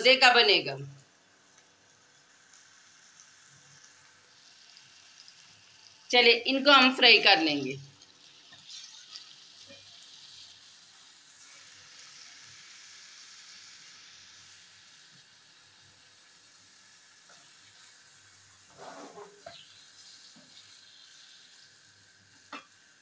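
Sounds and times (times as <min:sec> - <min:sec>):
potatoes sizzling in oil: 0:00.0 - 0:23.0
spatula scraping wok: 0:08.5 - 0:12.2, 0:17.2 - 0:21.6.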